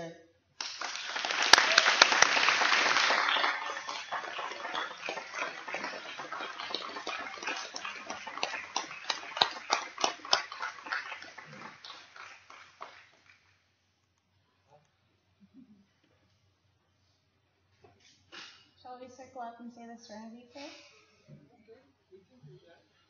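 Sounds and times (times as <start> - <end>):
audience applauding: 0.6 - 13.5.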